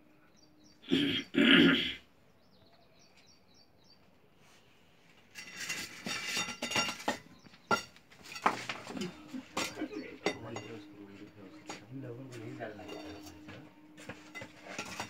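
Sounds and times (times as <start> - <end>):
rustling and scraping of sack and bricks: 4.4 - 15.0
sharp knocks on concrete: 5.9 - 10.8.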